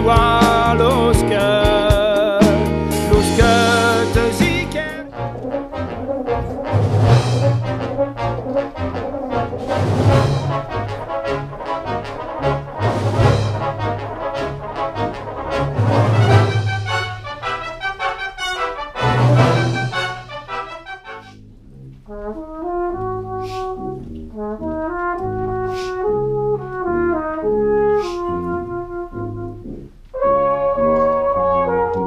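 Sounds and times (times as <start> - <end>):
brass band playing: 0.0 - 21.4, 22.1 - 32.0
different music: 0.0 - 21.4.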